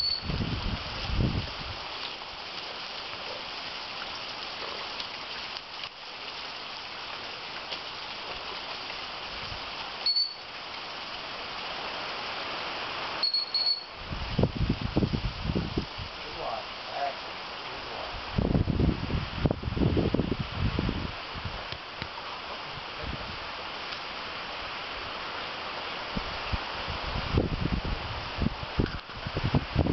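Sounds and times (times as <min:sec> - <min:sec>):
dog training whistle pips: 0:00.0 - 0:00.3, 0:10.0 - 0:10.4, 0:13.2 - 0:13.9.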